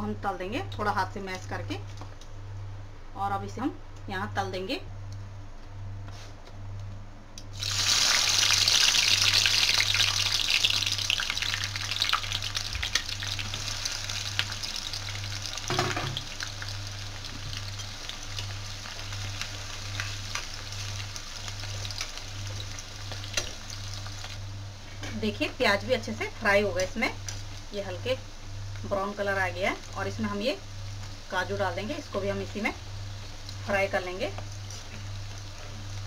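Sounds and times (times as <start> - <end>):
onions sizzling in hot oil: 7.5 - 36.0.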